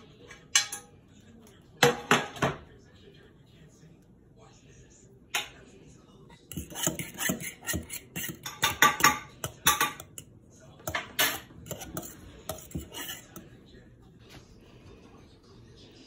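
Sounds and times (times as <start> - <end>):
metal utensil stirring in steel bowl: 6.5 - 13.5.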